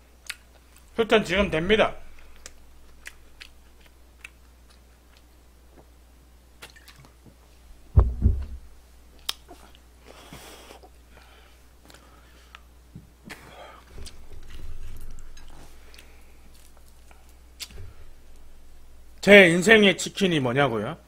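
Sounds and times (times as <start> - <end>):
chewing crunchy food: 2.4 - 5.3
dull thump: 7.9 - 8.8, 17.7 - 19.2.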